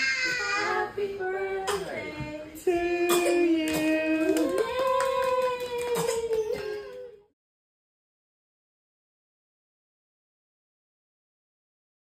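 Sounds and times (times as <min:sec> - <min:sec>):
child singing sliding notes: 0:00.0 - 0:04.2.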